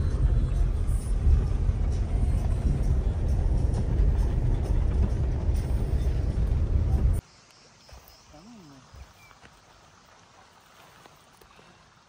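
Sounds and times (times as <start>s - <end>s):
car engine and road noise: 0.0s - 7.4s.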